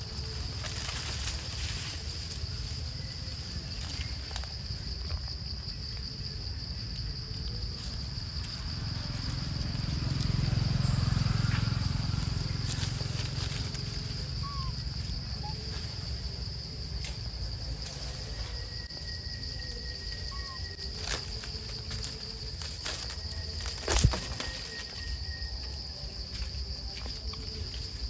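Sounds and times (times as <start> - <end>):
high-pitched insect drone: 0.0 - 28.0
faint chirps: 10.0 - 16.3, 17.0 - 22.1.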